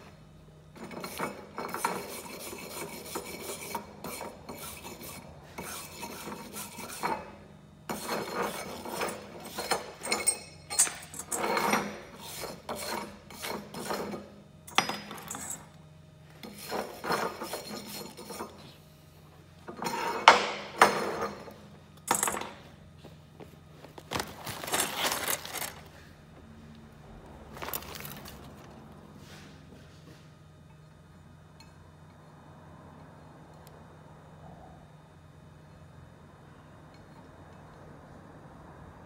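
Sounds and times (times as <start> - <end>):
steel tools scraping metal plates: 0.8 - 7.3, 7.9 - 14.2, 16.4 - 18.7.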